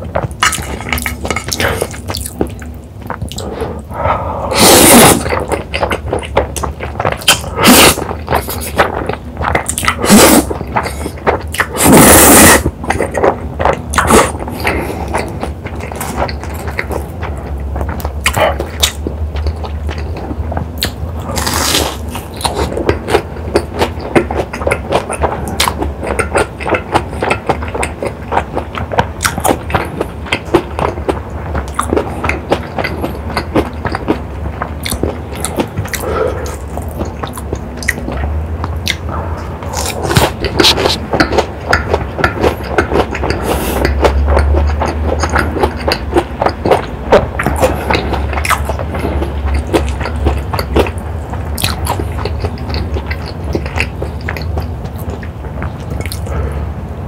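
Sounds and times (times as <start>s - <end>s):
wet chewing and crunching: 0.0s - 56.6s
slurping noodles: 3.3s - 6.0s, 7.2s - 8.8s, 9.7s - 13.4s, 42.3s - 45.9s.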